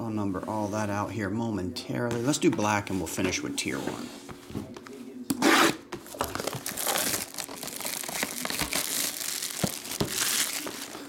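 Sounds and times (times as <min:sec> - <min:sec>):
plastic wrapping crinkling: 0:06.0 - 0:11.0.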